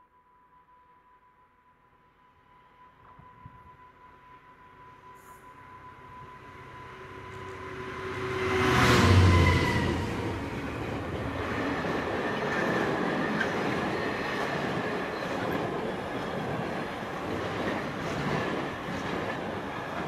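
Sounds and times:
diesel locomotive passing: 2.8 - 20.0
train wagons rolling: 9.0 - 20.0.

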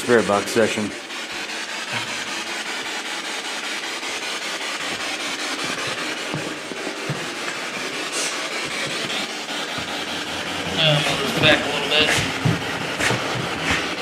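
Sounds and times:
radio static hiss: 10.6 - 12.3.

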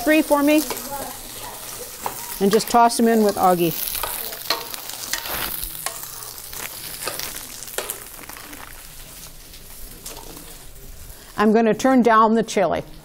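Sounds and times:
peas sizzling in oil: 0.0 - 11.5
spatula scraping a pan: 0.6 - 10.8.

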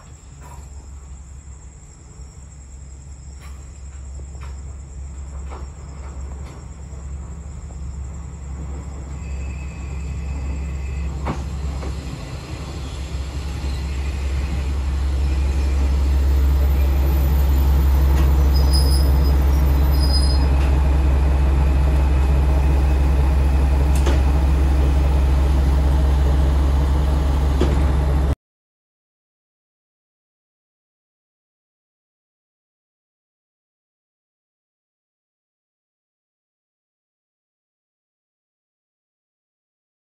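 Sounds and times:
diesel railcar engine hum: 0.0 - 28.4
high squeals: 8.9 - 20.6.

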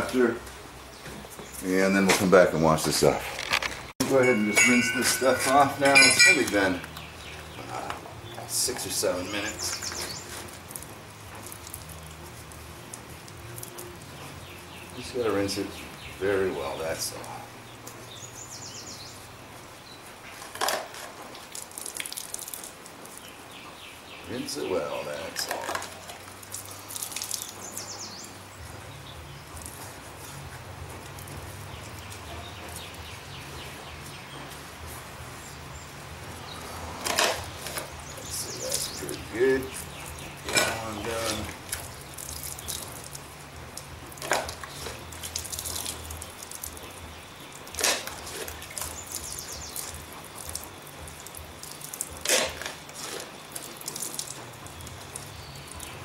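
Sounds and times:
small birds chirping: 0.0 - 20.5, 21.3 - 56.0
liquid splashing onto wet concrete: 4.1 - 17.4, 20.4 - 28.4, 37.0 - 56.0.

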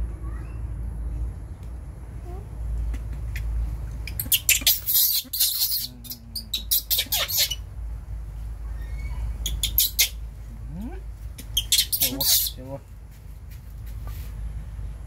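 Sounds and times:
baby monkey squealing: 3.3 - 7.7, 8.7 - 10.3, 11.4 - 12.7.

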